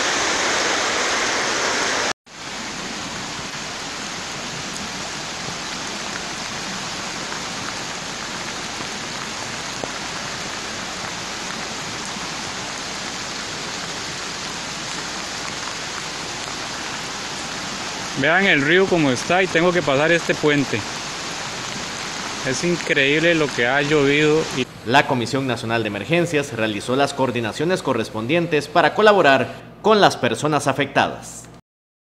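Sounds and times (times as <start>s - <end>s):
heavy rain: 0.0s - 25.0s
rushing floodwater: 0.0s - 26.9s.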